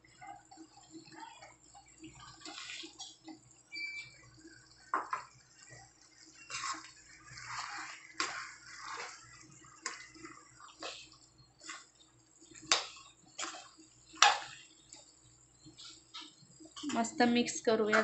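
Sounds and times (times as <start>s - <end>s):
steel spoon scraping a pan: 6.4s - 12.0s, 17.8s - 18.0s.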